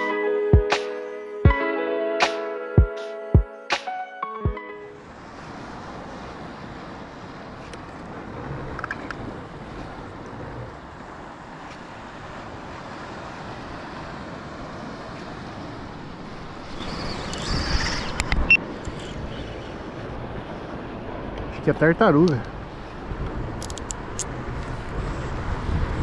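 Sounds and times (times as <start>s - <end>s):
moving sea water: 4.8s - 26.0s
wind buffeting microphone: 22.5s - 26.0s.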